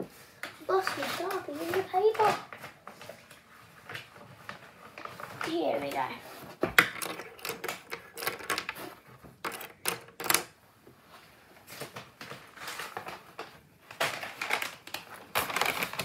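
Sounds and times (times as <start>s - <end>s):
paper rustling: 0.2s - 16.0s
markers clattering: 4.9s - 10.6s.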